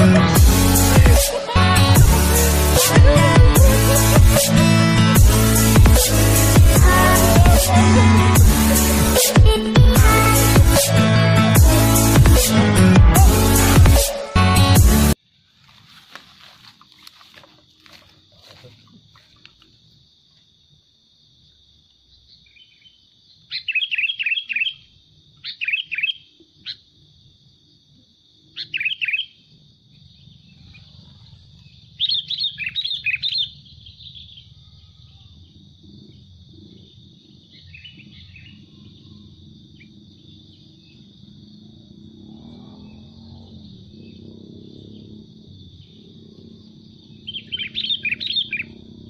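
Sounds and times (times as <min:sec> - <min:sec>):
bulbul calling: 0:47.1 - 0:48.8.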